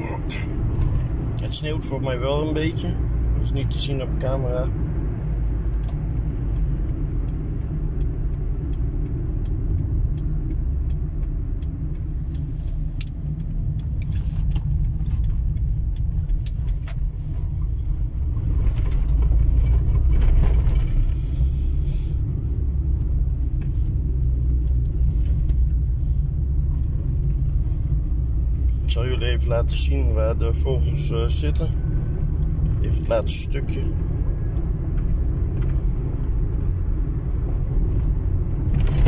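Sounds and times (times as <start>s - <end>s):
engine and tyre rumble: 0.0s - 39.0s
light ticks: 0.8s - 21.5s, 22.2s - 39.0s.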